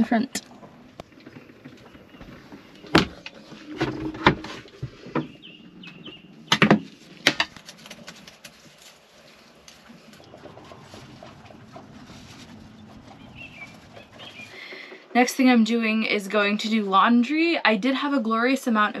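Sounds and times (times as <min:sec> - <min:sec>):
bird chirping: 0:00.0 - 0:03.6, 0:05.0 - 0:06.6, 0:09.4 - 0:15.1.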